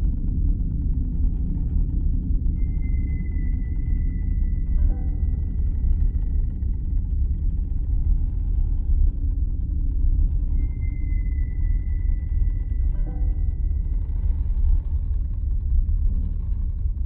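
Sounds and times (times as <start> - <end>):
low rumbling film score drone: 0.0 - 17.0
thin high held tone: 10.6 - 14.1.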